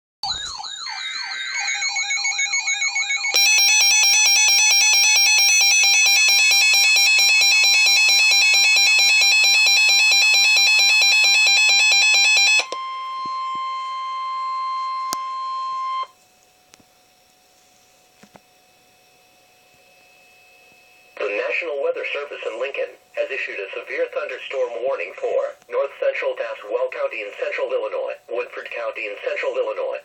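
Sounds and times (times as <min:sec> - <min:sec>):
rapid electronic beeping: 0:00.2 - 0:12.7
steady warning alert tone: 0:00.2 - 0:16.1
warbling siren tone: 0:00.2 - 0:16.1.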